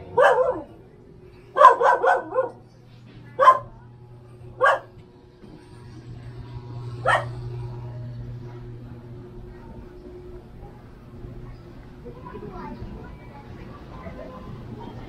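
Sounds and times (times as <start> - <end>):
dog barking: 0.0 - 0.7, 1.6 - 2.6, 3.4 - 3.8, 4.6 - 5.0, 7.0 - 7.4.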